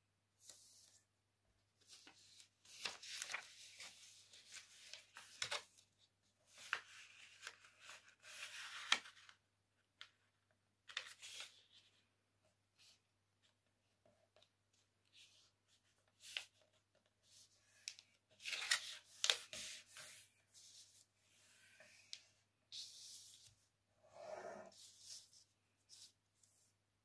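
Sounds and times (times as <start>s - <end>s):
paper rustling and crinkling: 1.8s - 9.4s, 10.0s - 12.0s, 14.7s - 21.1s.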